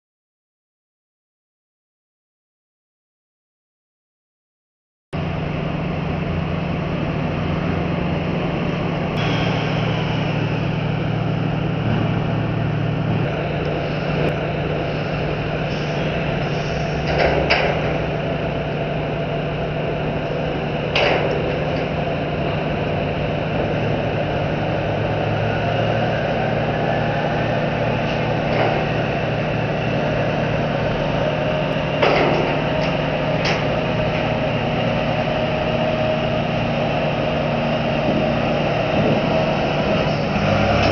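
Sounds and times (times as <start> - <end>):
heavy diesel engine running: 5.2 - 40.9
sharp metallic clanks: 9.2 - 10.4.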